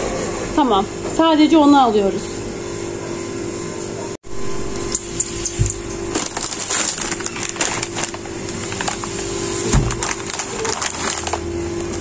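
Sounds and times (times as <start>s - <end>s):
steady hum: 0.0s - 12.0s
crackling handling noise: 4.7s - 12.0s.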